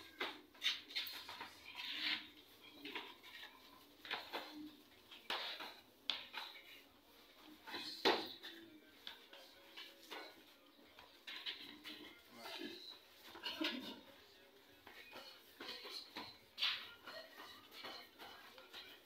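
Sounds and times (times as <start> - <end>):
scuffs and slaps of sparring: 7.7 - 12.1, 14.8 - 19.0.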